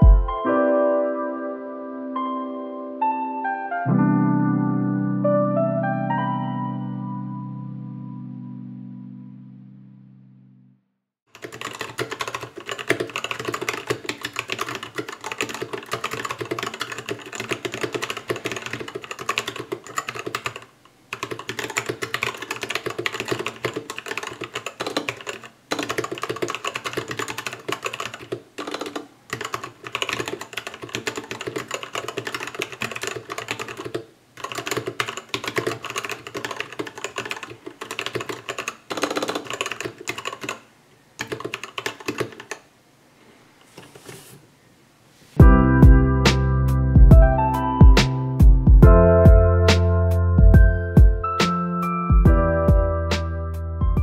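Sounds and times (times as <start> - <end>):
mechanical keyboard typing: 11.3 - 42.7.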